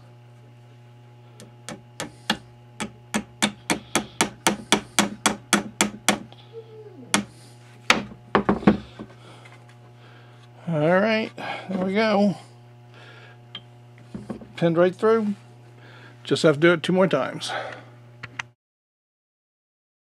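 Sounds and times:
steady electrical hum: 0.0 - 18.6
knocks: 7.9 - 8.9.

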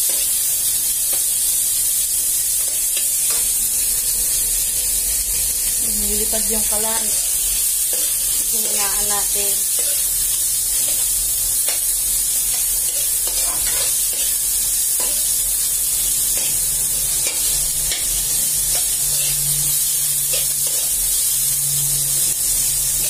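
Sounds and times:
food sizzling in a metal wok: 0.0 - 23.0
metal ladle scraping a pan: 12.9 - 14.4.

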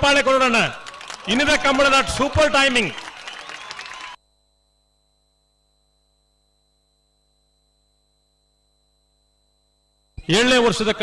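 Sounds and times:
faint steady hum: 4.2 - 11.0.

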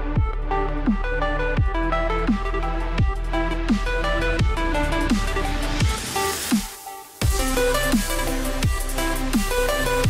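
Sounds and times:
heavy kick drum: 0.0 - 2.0, 3.0 - 9.0
deep bass: 0.0 - 10.0.

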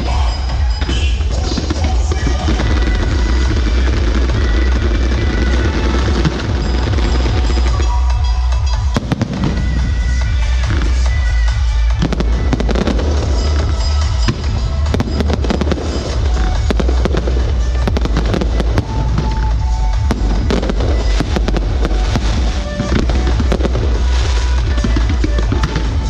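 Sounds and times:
fireworks bursting and crackling: 0.0 - 26.0.

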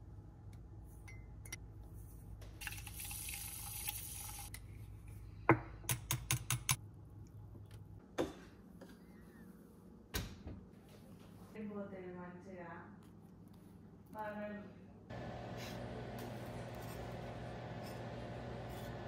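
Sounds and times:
liquid pouring into mug: 2.6 - 4.5.

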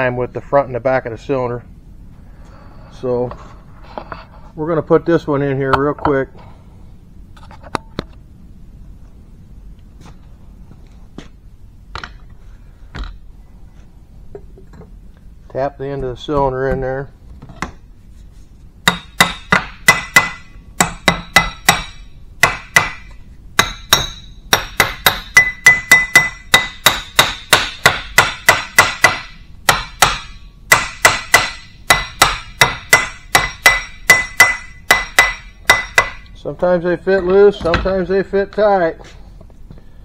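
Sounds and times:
hammer tapping on steel: 18.9 - 36.3.

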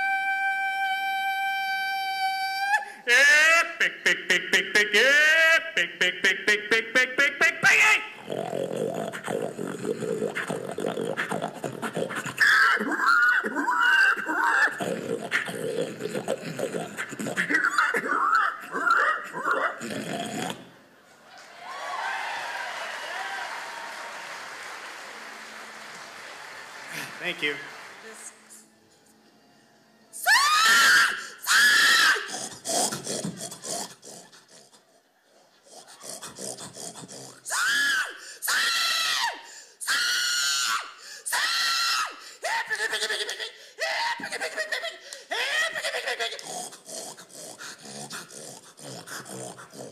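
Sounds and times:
woman shrieking hog calls: 0.0 - 3.7, 12.4 - 14.8, 30.2 - 32.3, 37.5 - 43.2
man imitating pig squeals: 0.0 - 20.7, 30.2 - 34.3, 35.8 - 47.2
man imitating pig grunts: 8.1 - 20.7, 32.2 - 34.8, 35.6 - 37.5, 46.1 - 49.9.

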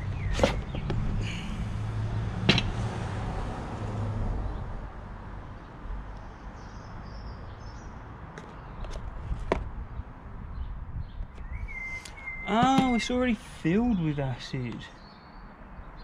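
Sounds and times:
box knocking on glass table: 12.5 - 13.0.

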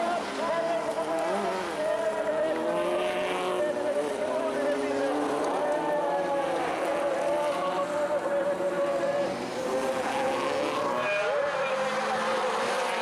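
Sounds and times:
race car engines revving: 0.0 - 13.0.

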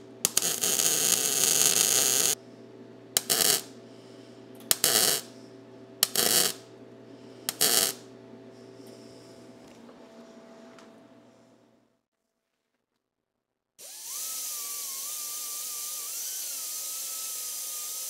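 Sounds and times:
welder arc crackling: 0.0 - 2.4, 3.2 - 3.7, 4.6 - 5.3, 6.0 - 6.6, 7.5 - 8.1, 13.8 - 18.0
steady machine hum: 0.0 - 12.1, 13.8 - 18.0.

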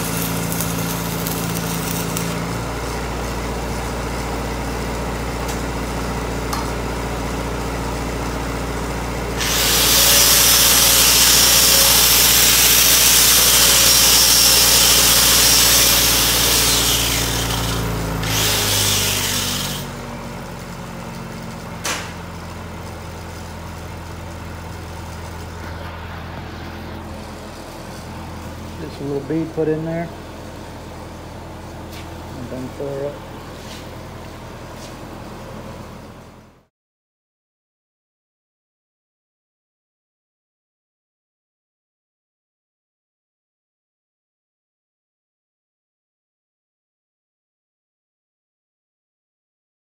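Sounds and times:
angle grinder grinding steel: 0.0 - 2.5, 9.4 - 20.1
engine running: 0.0 - 36.7.

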